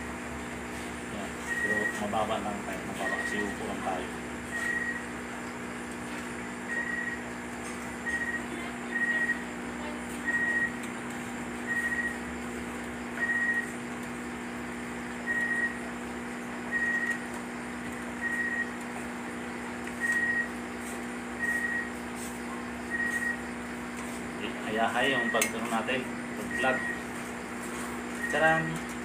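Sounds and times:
steady low hum: 0.0s - 29.0s
high electronic beep: 1.5s - 2.0s, 3.0s - 3.5s, 25.2s - 25.5s, 26.5s - 27.0s.

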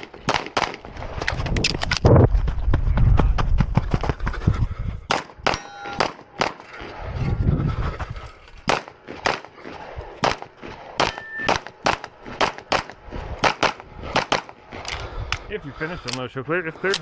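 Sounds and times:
pistol shots: 5.1s - 6.6s, 8.7s - 14.6s.

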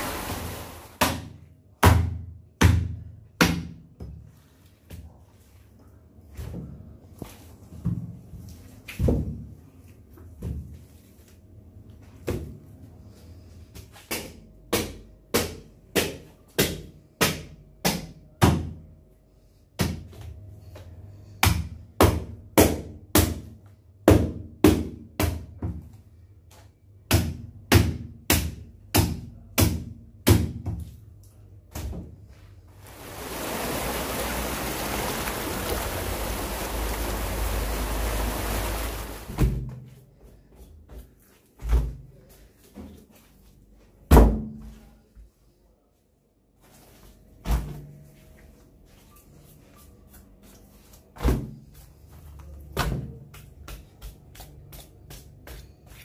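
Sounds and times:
steady rushing noise: 32.8s - 39.4s.

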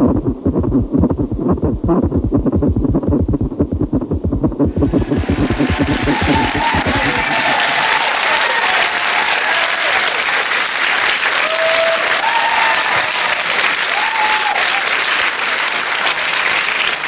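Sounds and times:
audience applauding: 4.7s - 17.0s.

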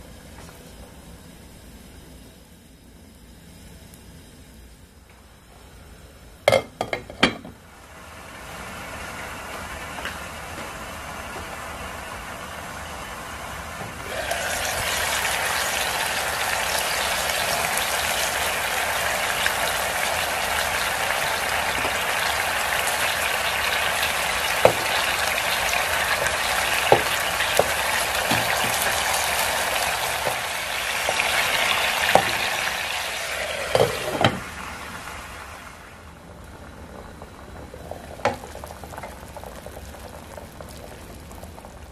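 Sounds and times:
meat sizzling in a pan: 14.0s - 35.9s, 38.0s - 41.9s.

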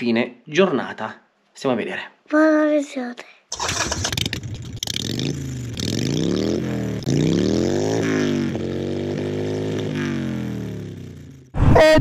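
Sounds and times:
motorcycle engine accelerating: 3.6s - 11.6s.

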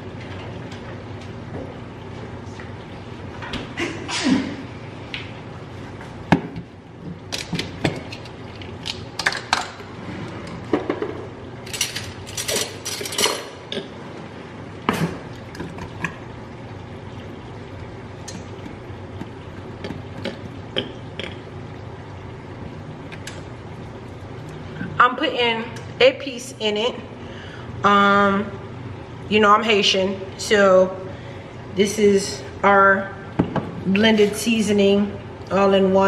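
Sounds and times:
steady low hum: 0.0s - 36.0s
dishes and utensils clinking: 11.7s - 13.6s.

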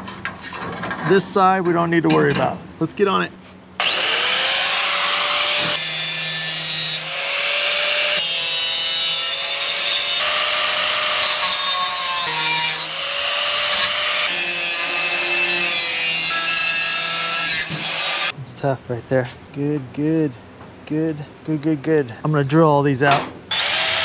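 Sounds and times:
angle grinder cutting steel: 3.8s - 18.3s, 23.5s - 24.0s.

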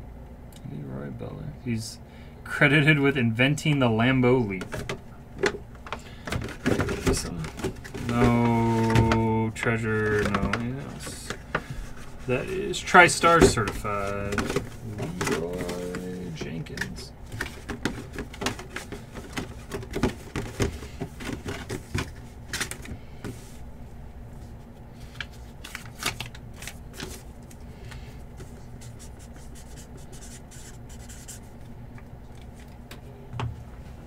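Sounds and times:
hands handling cardboard box: 4.6s - 23.6s.

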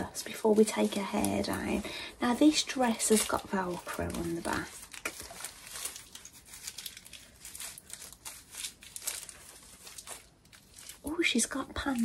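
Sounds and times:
fabric and plastic wrap rustling: 0.0s - 12.0s
velcro tearing open: 3.0s - 11.1s.

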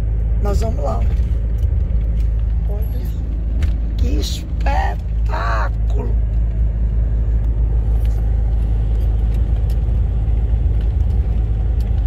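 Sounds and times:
lorry engine and road rumble: 0.0s - 12.0s.

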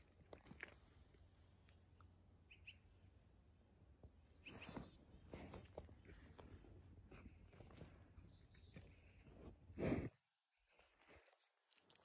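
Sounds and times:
faint bird chirps: 1.6s - 3.2s, 4.0s - 5.1s.

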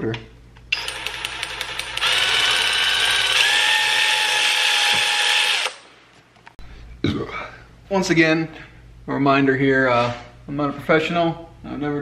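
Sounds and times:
electric ratchet motor whine: 0.8s - 5.8s
ratchet clicks: 0.8s - 5.8s.

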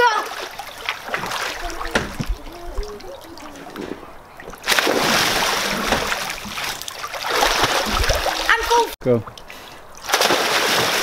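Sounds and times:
child splashing into pool: 0.0s - 8.8s, 10.0s - 11.0s
water splashing and sloshing: 0.0s - 11.0s.

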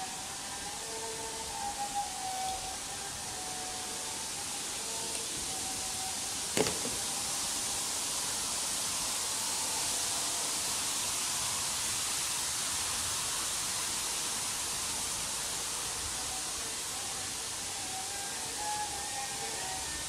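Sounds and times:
steady even hiss: 0.0s - 20.0s.

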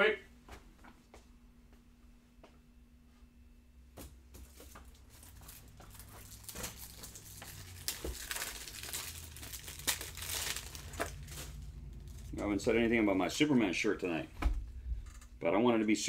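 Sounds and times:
plastic crinkling and rustling: 4.4s - 13.0s.

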